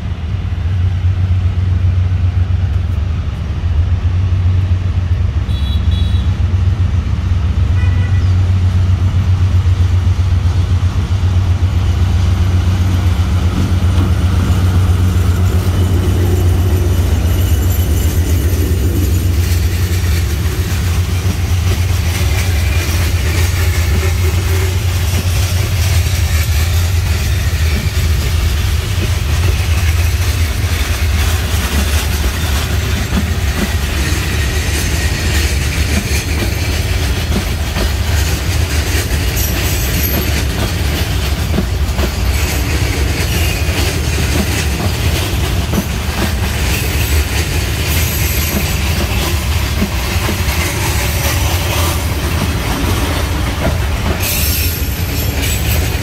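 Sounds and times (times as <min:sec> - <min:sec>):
train wheels rumbling on rails: 0:00.0 - 0:56.0
wheels clicking over rail joints: 0:12.1 - 0:56.0.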